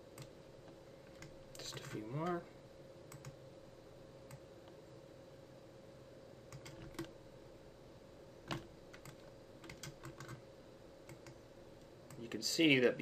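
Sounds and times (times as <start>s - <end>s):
faint steady hum: 0.0s - 13.0s
keyboard and mouse clicking: 3.1s - 3.4s, 6.5s - 7.1s, 8.5s - 10.4s, 11.1s - 11.4s.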